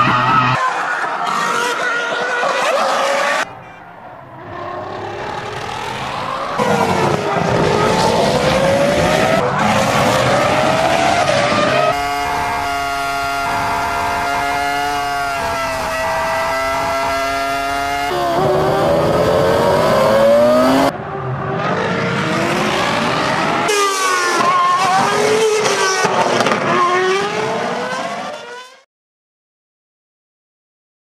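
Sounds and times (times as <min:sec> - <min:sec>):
racing engine accelerating: 0:04.3 - 0:28.8
raspy crackling engine note: 0:12.0 - 0:20.9.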